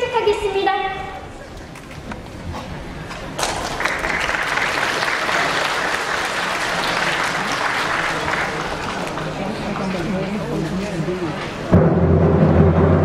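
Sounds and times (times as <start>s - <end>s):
audience applauding: 3.4s - 10.6s.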